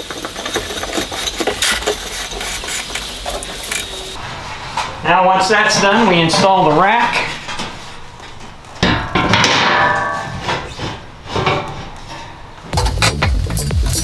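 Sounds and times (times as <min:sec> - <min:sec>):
background music with heavy beat: 0:12.7 - 0:14.0.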